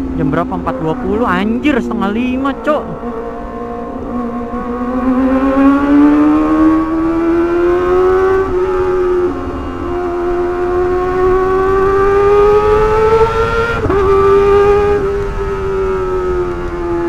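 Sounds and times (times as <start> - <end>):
motorcycle engine wailing: 0.0 - 17.0
wind noise: 3.9 - 17.0.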